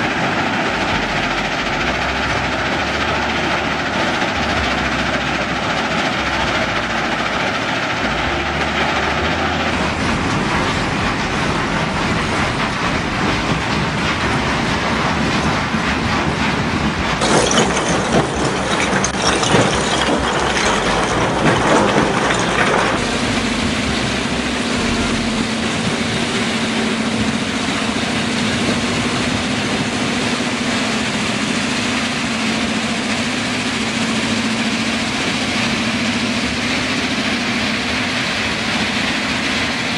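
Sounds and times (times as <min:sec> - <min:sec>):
stone crushing machinery clatter: 0:09.8 - 0:24.0
rock pouring off conveyor: 0:17.2 - 0:24.2.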